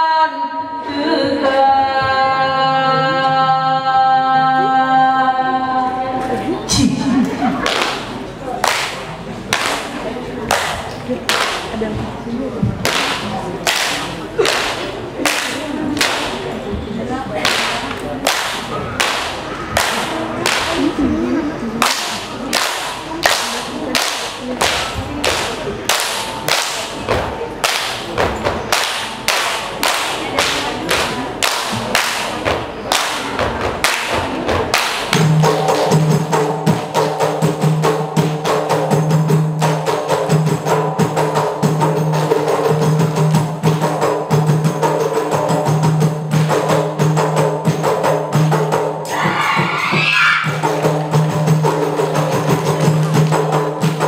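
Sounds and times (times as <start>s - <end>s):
person singing: 0.0s - 7.5s
hand claps and slaps: 7.6s - 9.9s, 10.5s - 11.7s, 12.8s - 16.4s, 17.4s - 20.8s, 21.8s - 36.0s.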